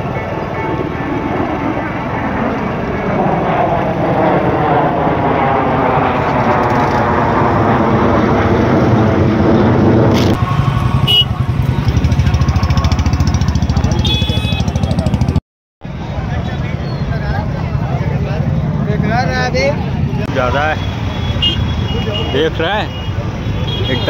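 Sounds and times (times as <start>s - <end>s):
engine running: 0.0s - 15.4s.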